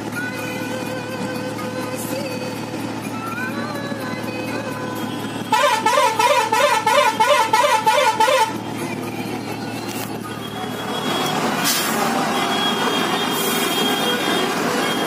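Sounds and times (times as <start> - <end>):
engine and traffic noise: 0.0 - 15.0
warbling vehicle horn: 5.3 - 8.7, 10.4 - 15.0.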